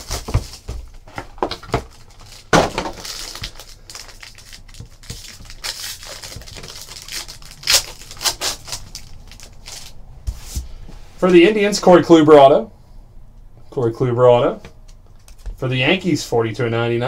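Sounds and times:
foil wrapper ripping and crinkling: 0:00.0 - 0:10.0.

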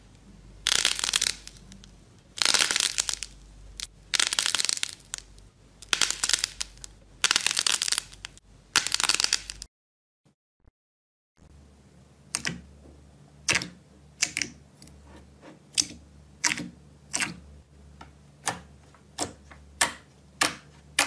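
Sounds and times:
clay balls crunching by hand: 0:00.6 - 0:09.7.

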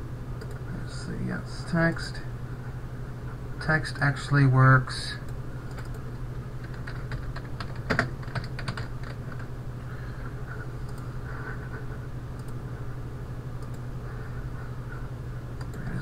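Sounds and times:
steady low hum: 0:00.0 - 0:16.0
typing on keyboard: 0:05.7 - 0:06.0, 0:06.6 - 0:09.5.

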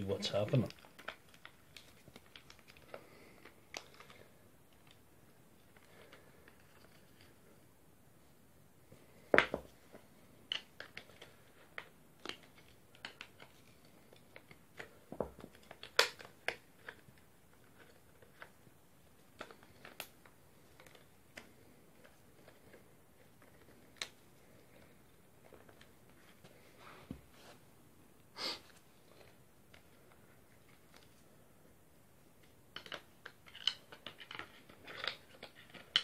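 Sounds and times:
plastic and metal parts clicking: 0:32.4 - 0:36.0.

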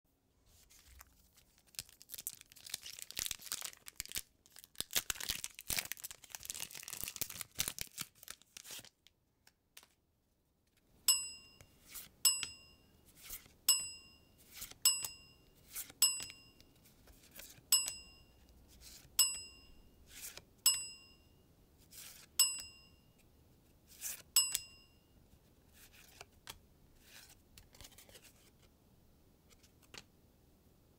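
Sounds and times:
card shuffling: 0:00.5 - 0:02.0, 0:13.1 - 0:13.6, 0:14.4 - 0:14.8, 0:15.6 - 0:16.0, 0:16.8 - 0:17.7, 0:20.1 - 0:20.5, 0:25.7 - 0:28.7, 0:29.5 - 0:30.1
foil wrapper crinkling and tearing: 0:00.9 - 0:09.1
short bright ding chimes: 0:11.1 - 0:12.9, 0:20.7 - 0:21.4, 0:24.4 - 0:25.1
card sliding: 0:20.1 - 0:20.4.

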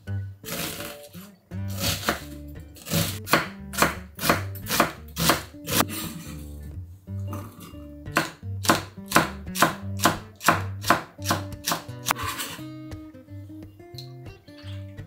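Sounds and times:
background music: 0:00.0 - 0:15.0
knife chopping onion on wooden board: 0:01.7 - 0:06.0, 0:08.1 - 0:12.6.

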